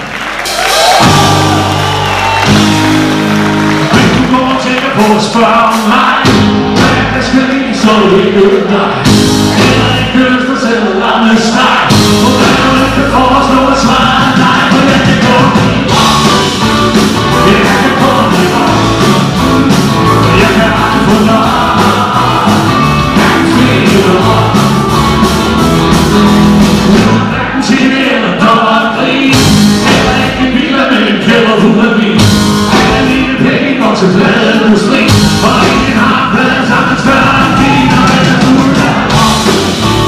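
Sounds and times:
live rock band playing: 0.0s - 40.0s
person singing: 3.8s - 25.4s, 27.0s - 40.0s.

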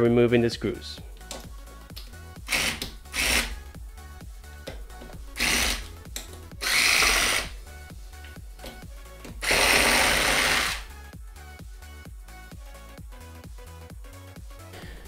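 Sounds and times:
background music with steady beat: 0.0s - 15.0s
electric screwdriver running: 2.5s - 3.6s, 5.4s - 5.9s, 6.6s - 7.6s, 9.4s - 10.9s.

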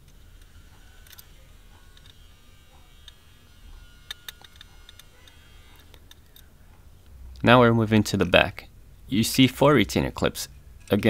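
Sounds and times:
low steady hum: 0.0s - 11.0s
plastic fasteners clicking: 4.1s - 6.5s.

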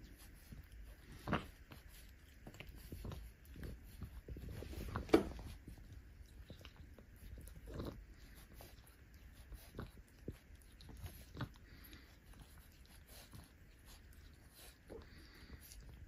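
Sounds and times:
cat licking and nibbling fur: 0.0s - 16.0s.

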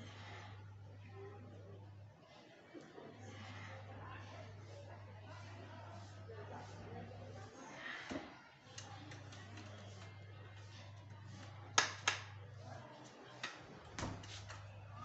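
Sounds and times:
steady low hum: 0.0s - 8.0s
soft footsteps: 14.0s - 14.8s.

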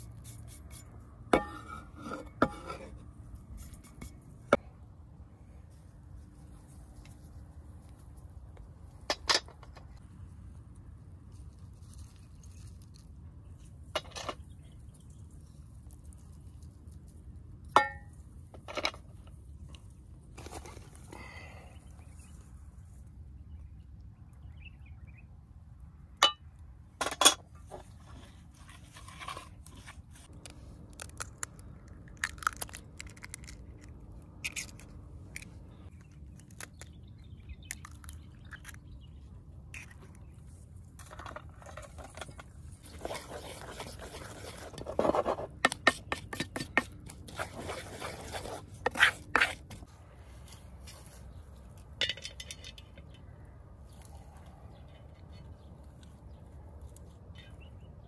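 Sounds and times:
small scrapes in bowl: 42.8s - 49.8s.

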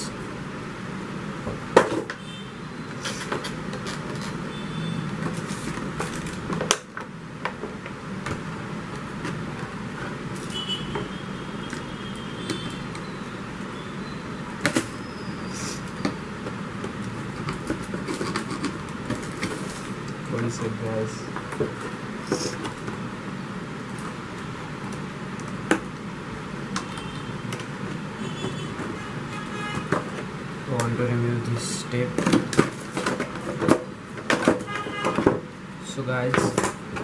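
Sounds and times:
steady background hum: 0.0s - 37.0s
packaging knocks and rustles: 5.1s - 11.1s, 16.0s - 20.6s, 32.1s - 35.5s.

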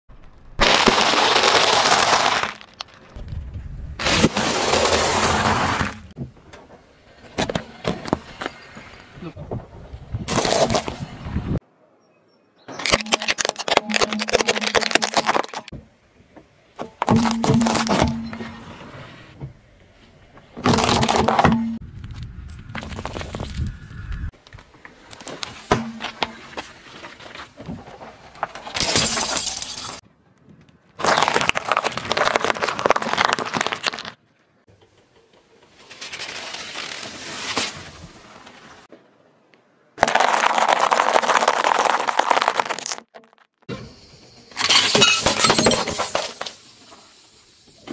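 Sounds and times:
plastic cracking under tyre: 0.2s - 3.2s, 12.8s - 15.7s, 31.0s - 34.2s, 40.0s - 43.6s
vegetables cracking under tyre: 0.3s - 3.0s, 12.8s - 15.7s, 31.0s - 34.2s, 40.0s - 43.6s.

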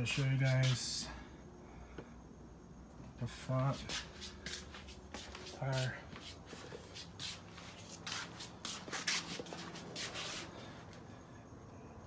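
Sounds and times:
rubbing scuffing noises: 0.0s - 1.0s, 3.4s - 11.0s.

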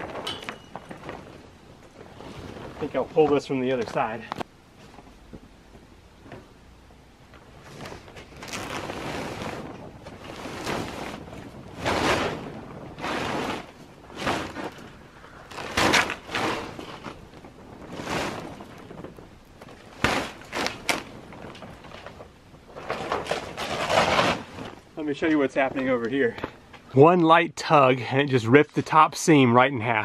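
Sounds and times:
tarp dragged over metal frame: 0.0s - 4.2s, 7.5s - 26.0s.

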